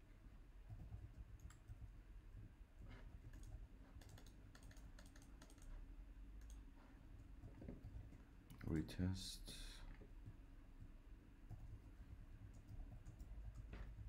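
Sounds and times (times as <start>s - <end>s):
low steady hum: 0.0s - 14.0s
mouse and keyboard clicks: 2.8s - 5.8s.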